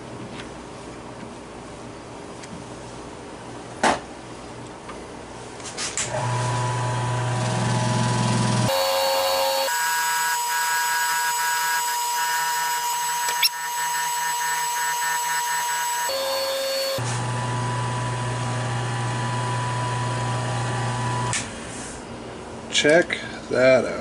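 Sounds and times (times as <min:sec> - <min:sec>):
lathe machine hum: 0:06.1 - 0:21.3.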